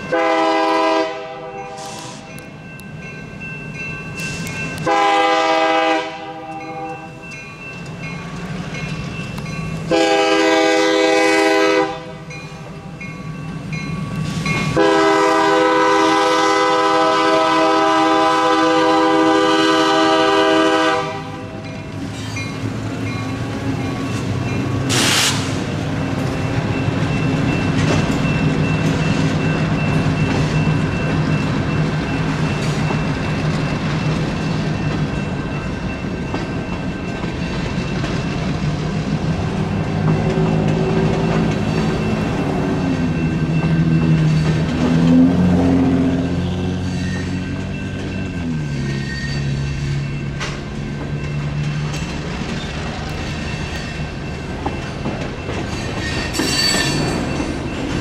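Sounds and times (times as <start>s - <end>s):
crossing bell ringing: 0.0s - 58.0s
train wheels rumbling and clattering: 0.0s - 58.0s
train horn blasts: 0.1s - 2.3s, 4.8s - 7.1s, 9.9s - 12.3s, 14.7s - 21.6s.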